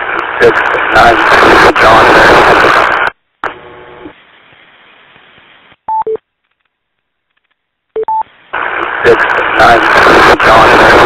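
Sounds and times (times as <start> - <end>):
radio channel hiss: 0.0 - 5.9, 8.2 - 11.0.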